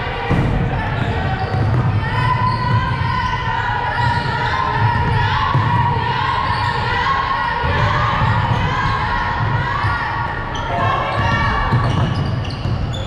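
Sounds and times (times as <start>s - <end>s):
voices shouting: 0.0s - 13.0s.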